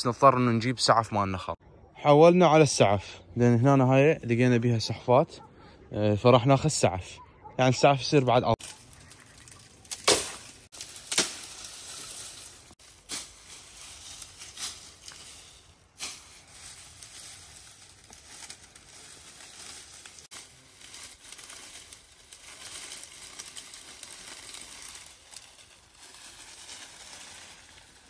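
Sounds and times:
dry palm fronds crackling: 8.5 - 28.0.

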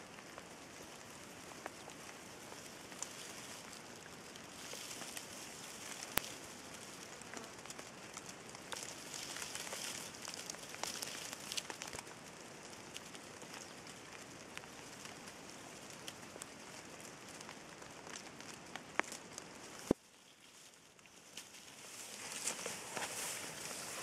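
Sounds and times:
crackles and scratches in leaf litter: 0.0 - 24.0
faint high hiss: 19.3 - 24.0.

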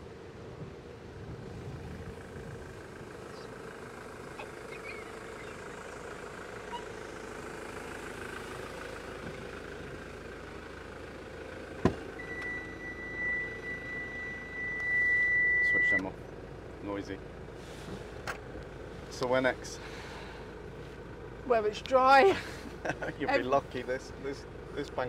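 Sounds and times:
engine idling: 0.0 - 25.0
high warning tone: 6.6 - 7.0, 12.2 - 16.1.

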